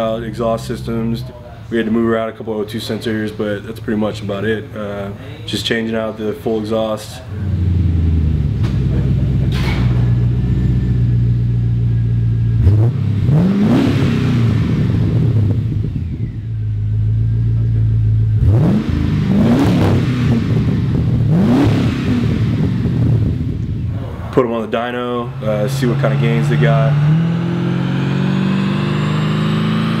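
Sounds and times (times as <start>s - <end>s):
car engine idling and revving: 0.0s - 2.0s, 7.3s - 30.0s.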